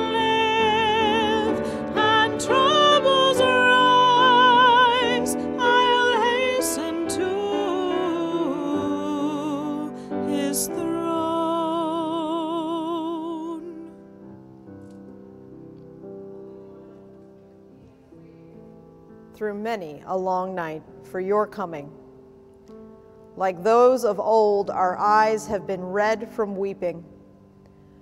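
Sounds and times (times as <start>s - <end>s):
person singing a hymn with vibrato: 0.0s - 14.0s
keyboard accompaniment: 0.0s - 20.0s.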